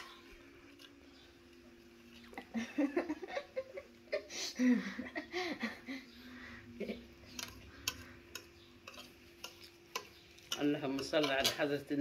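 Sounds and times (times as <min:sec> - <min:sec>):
metal spoon scraping a plate: 0:07.3 - 0:12.0.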